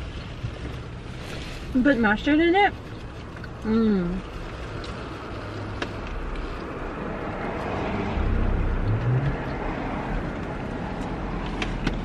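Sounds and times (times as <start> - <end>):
vehicle rumble inside car: 0.0 - 12.0.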